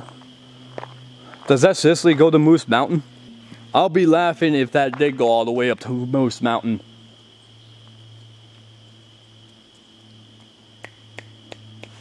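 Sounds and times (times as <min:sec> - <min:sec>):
footsteps on a trail: 0:00.0 - 0:02.3
steady low hum: 0:00.0 - 0:12.0.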